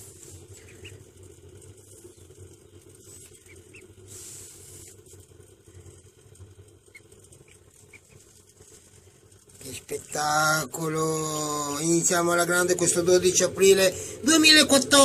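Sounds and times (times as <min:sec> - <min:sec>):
steady low hum: 0:00.0 - 0:15.0
ducklings peeping: 0:00.1 - 0:05.2, 0:06.8 - 0:08.8, 0:09.6 - 0:14.7
brief hiss: 0:04.1 - 0:05.0.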